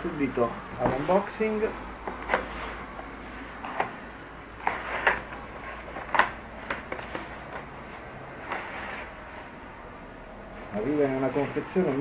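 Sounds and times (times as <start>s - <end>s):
cardboard scraping and rustling: 0.8s - 1.6s, 4.6s - 9.6s.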